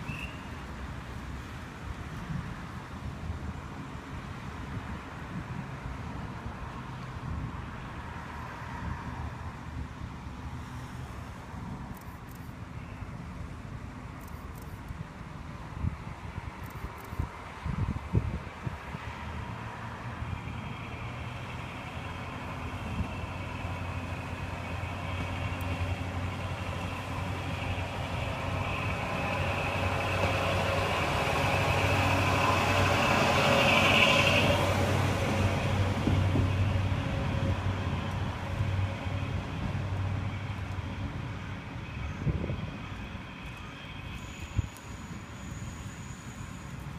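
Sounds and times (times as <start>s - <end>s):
diesel railcar engine drone: 0.0s - 46.9s.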